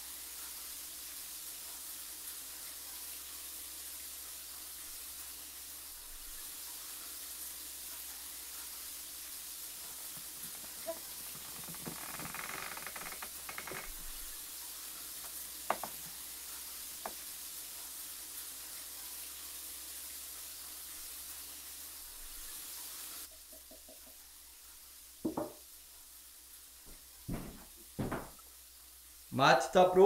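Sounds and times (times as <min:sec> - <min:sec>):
steady hiss: 0:00.0 - 0:30.0
quick knocks: 0:15.7 - 0:16.0, 0:25.2 - 0:25.6, 0:27.3 - 0:28.4.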